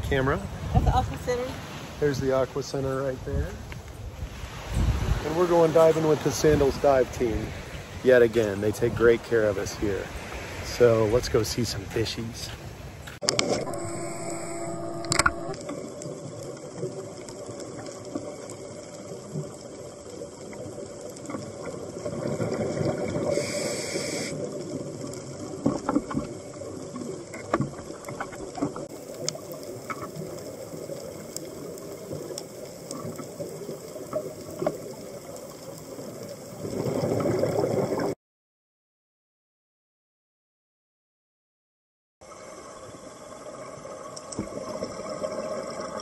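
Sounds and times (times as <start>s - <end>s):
clicks and crackles: 13.0s - 14.0s, 14.8s - 23.3s, 24.4s - 38.1s
underwater breath bubbling: 22.0s - 24.6s.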